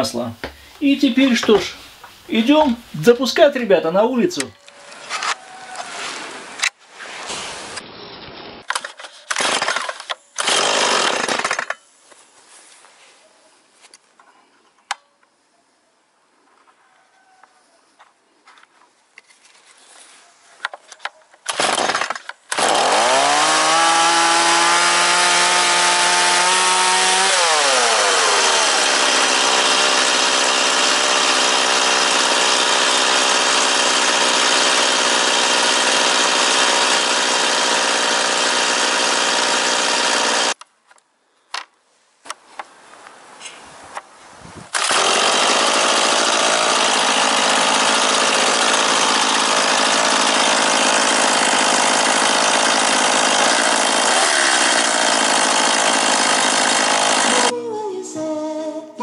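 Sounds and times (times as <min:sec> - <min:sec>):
chainsaw engine starting and idling: 0:08.6 - 0:11.8, 0:21.5 - 0:40.6, 0:44.7 - 0:57.5.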